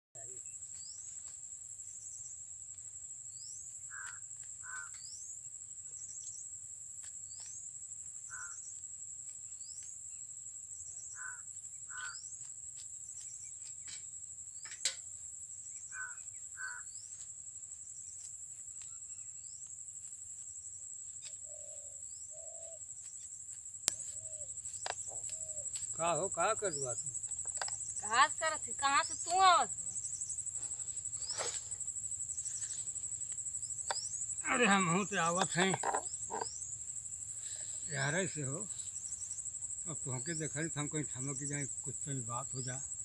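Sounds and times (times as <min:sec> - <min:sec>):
birds calling: 0:03.4 - 0:05.3, 0:08.3 - 0:08.7, 0:11.1 - 0:12.4, 0:15.8 - 0:17.1, 0:33.6 - 0:36.8
high-pitched insect drone: 0:21.2 - 0:43.0.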